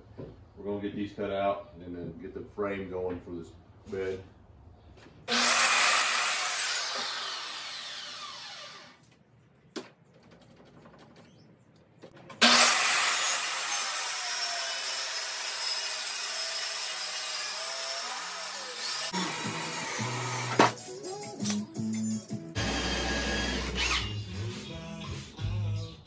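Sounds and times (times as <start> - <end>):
circular saw cutting: 5.3 - 9.0, 12.4 - 20.8, 22.6 - 24.7.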